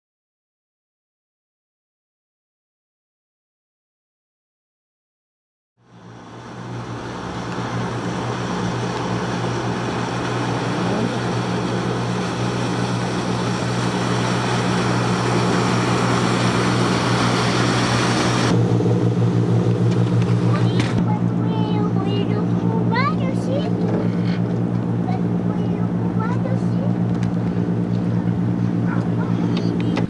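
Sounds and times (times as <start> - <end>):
motorboat engine running: 5.8 - 30.0
rush of water and wind: 6.0 - 18.6.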